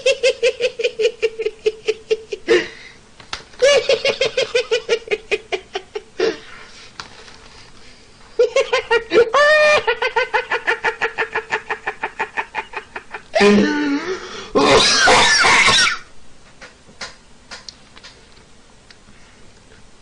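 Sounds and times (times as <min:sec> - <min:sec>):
man laughing hard: 0:00.0 - 0:02.8, 0:03.6 - 0:06.4, 0:08.4 - 0:16.0.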